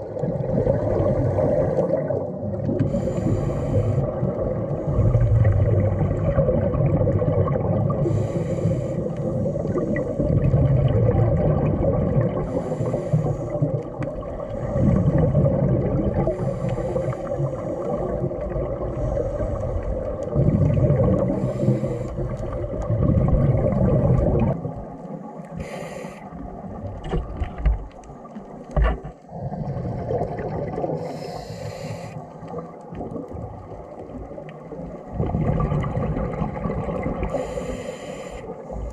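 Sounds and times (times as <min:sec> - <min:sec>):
low water noise: 0:00.0 - 0:38.9
regulator bubbles underwater: 0:00.0 - 0:38.9.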